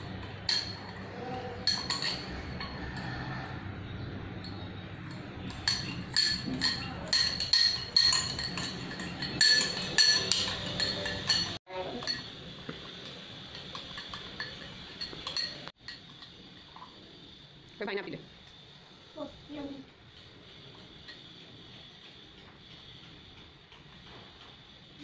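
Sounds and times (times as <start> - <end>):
teaspoon clinking in ceramic mug: 1.6 - 2.7, 5.4 - 12.3.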